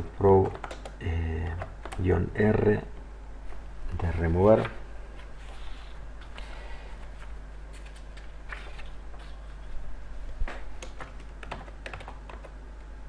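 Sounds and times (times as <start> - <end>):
steady low hum: 0.0 - 13.0
keyboard keystrokes: 0.4 - 1.0, 10.8 - 12.6.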